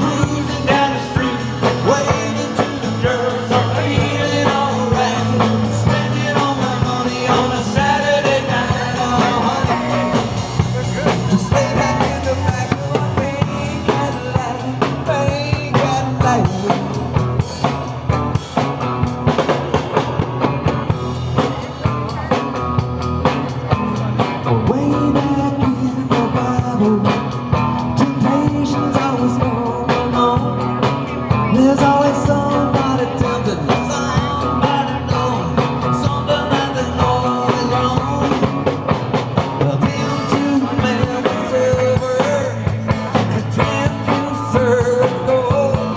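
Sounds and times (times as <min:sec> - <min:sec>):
man singing into a microphone: 0:00.0 - 0:17.4, 0:24.4 - 0:38.8, 0:39.5 - 0:45.9
bass guitar: 0:00.0 - 0:45.9
drum kit: 0:00.0 - 0:45.9
electric guitars: 0:00.0 - 0:45.9.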